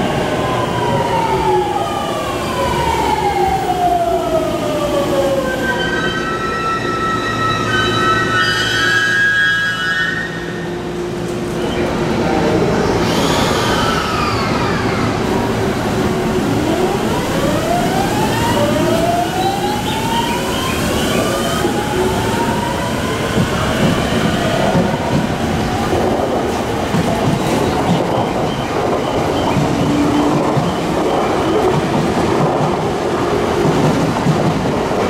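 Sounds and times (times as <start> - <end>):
train rumble: 10.6 - 35.0.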